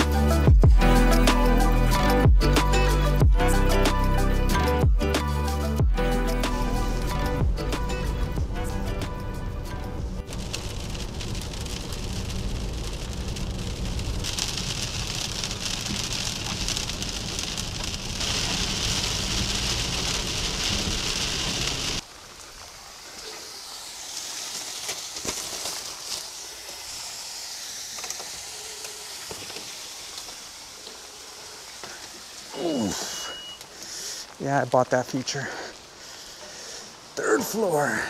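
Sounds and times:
low road rumble: 0:00.0 - 0:38.0
rain on wet pavement: 0:05.7 - 0:38.0
heavy rain on car windshield: 0:09.9 - 0:38.0.

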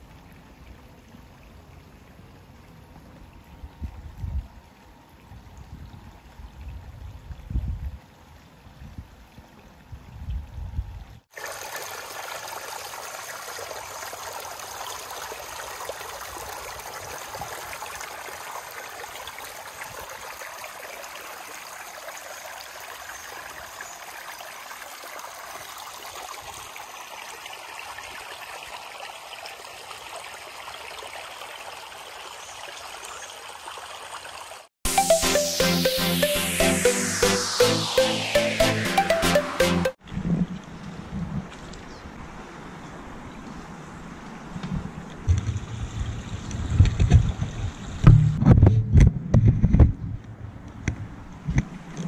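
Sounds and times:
creek trickling over rocks: 0:00.0 - 0:09.9, 0:11.2 - 0:34.7, 0:45.0 - 0:48.0.

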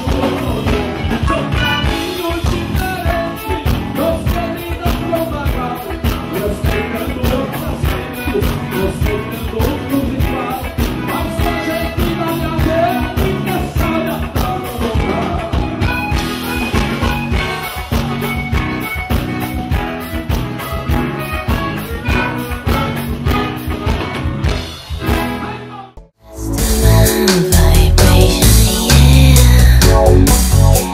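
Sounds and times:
man singing: 0:00.0 - 0:16.2, 0:25.4 - 0:30.9
steady drum beat: 0:00.0 - 0:25.2, 0:26.3 - 0:30.9
live band music: 0:00.0 - 0:30.9.

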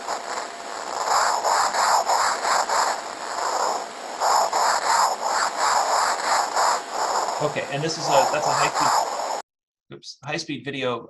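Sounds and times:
moth scratchy rasping pulses: 0:00.0 - 0:09.4.

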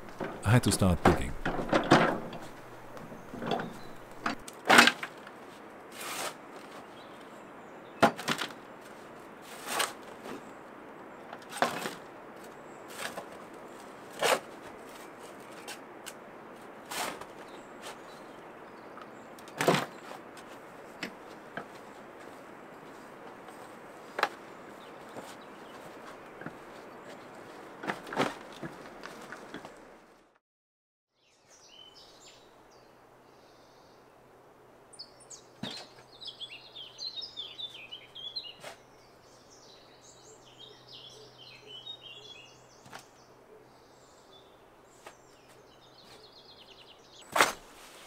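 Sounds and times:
shovel scraping stony soil: 0:05.9 - 0:06.7, 0:09.4 - 0:10.0, 0:16.8 - 0:18.0, 0:47.2 - 0:48.0.

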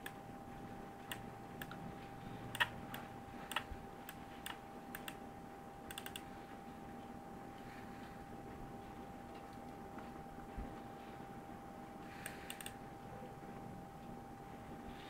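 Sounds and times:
faint steady whine: 0:00.0 - 0:15.0
computer control clicks: 0:02.5 - 0:05.2, 0:05.9 - 0:06.2.

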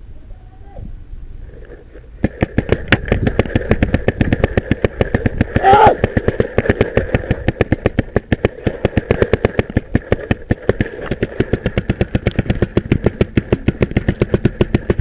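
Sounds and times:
paintball marker rapid firing: 0:02.2 - 0:15.0.

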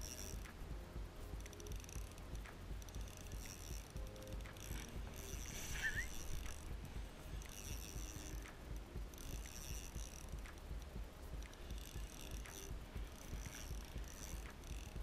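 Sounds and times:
fishing reel whirring: 0:00.0 - 0:15.0
wind rumble on microphone: 0:00.0 - 0:15.0
rising squeak: 0:03.0 - 0:06.7.

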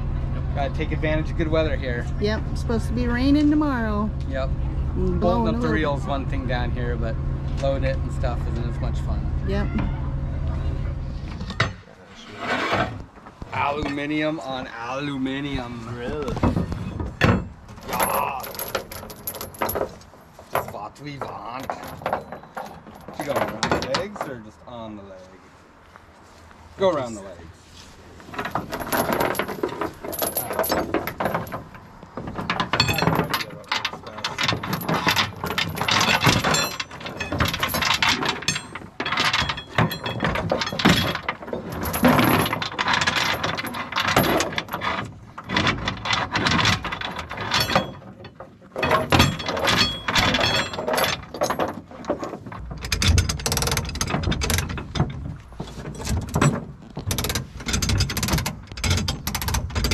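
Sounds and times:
metal scraping: 0:10.6 - 0:19.7.

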